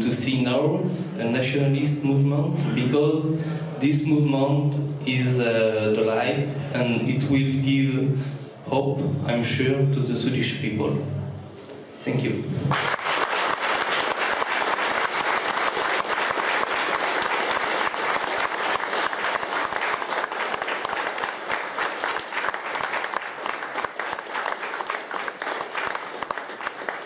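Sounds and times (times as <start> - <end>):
audience clapping: 12.7 - 27.0.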